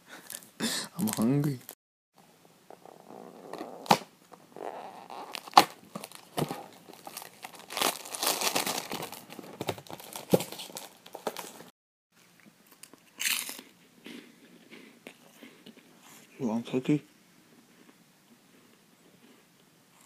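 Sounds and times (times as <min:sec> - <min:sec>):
plastic wrapper crinkling and tearing: 0:00.3 - 0:01.7, 0:05.1 - 0:11.7.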